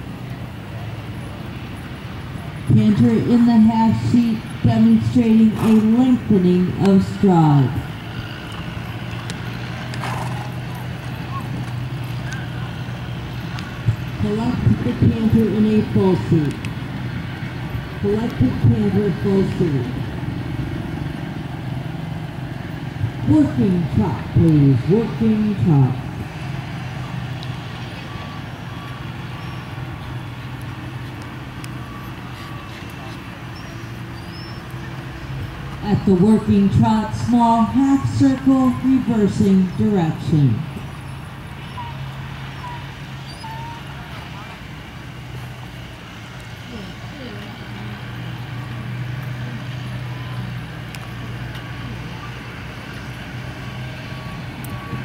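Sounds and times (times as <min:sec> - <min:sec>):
engine hum: 0:00.0 - 0:55.0
reversing beeper beeps: 0:27.0 - 0:30.6, 0:31.7 - 0:34.6, 0:41.6 - 0:44.0, 0:53.9 - 0:55.0.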